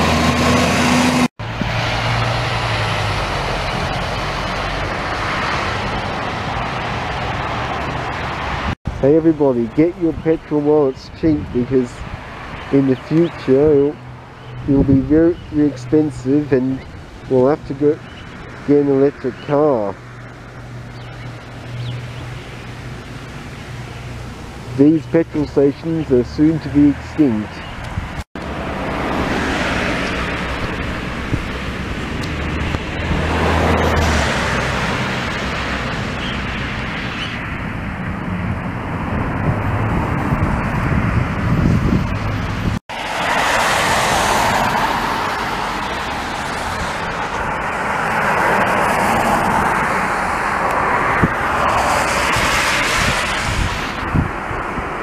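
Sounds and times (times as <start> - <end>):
tyres hissing on wet road: 28.4 - 37.4, 42.9 - 55.0.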